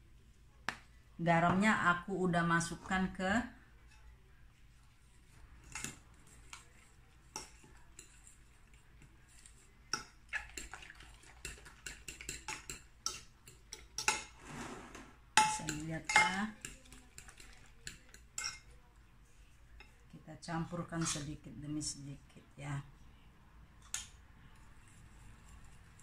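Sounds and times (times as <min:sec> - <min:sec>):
fork beating eggs in glass dish: 0:04.6 - 0:14.4, 0:15.4 - 0:18.8, 0:23.8 - 0:26.0.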